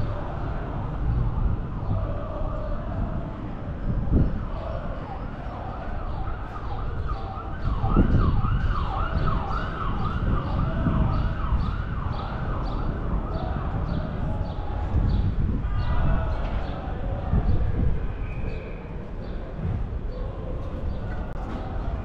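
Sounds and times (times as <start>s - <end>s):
emergency vehicle siren: 0.0s - 16.4s
low street noise rumble: 0.0s - 22.0s.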